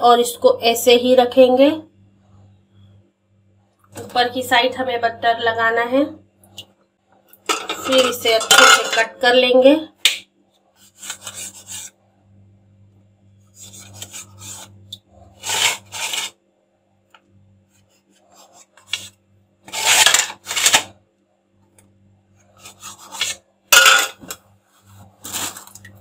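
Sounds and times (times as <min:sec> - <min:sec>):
knife sawing through bread: 0:13.6 - 0:14.7, 0:15.4 - 0:16.3, 0:22.6 - 0:23.4.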